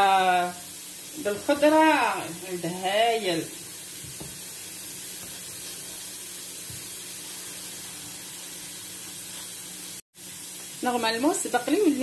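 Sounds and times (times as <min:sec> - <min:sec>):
speech: 0:00.0 - 0:00.6, 0:01.2 - 0:03.6, 0:10.8 - 0:12.0
steady hiss: 0:00.0 - 0:12.0.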